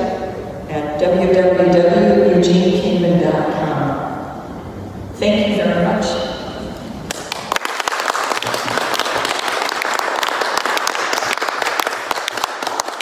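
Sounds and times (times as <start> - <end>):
audience applauding: 7.1 - 13.0.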